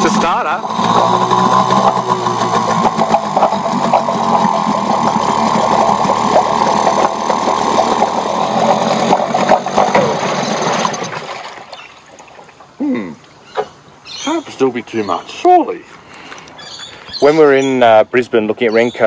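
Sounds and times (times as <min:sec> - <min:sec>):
outboard motor running: 0:00.0 - 0:11.9.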